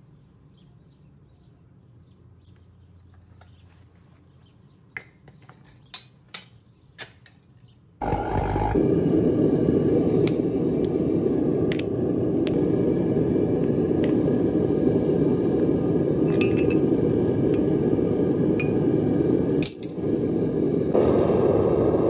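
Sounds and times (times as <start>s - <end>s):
furnace burner roar: 8.0s - 22.0s.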